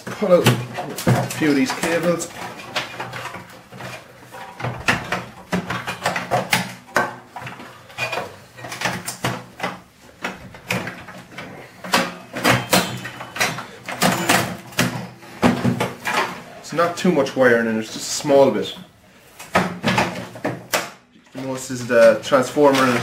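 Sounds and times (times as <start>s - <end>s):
pliers and wires clanking on metal: 0.0s - 16.5s, 19.4s - 23.0s.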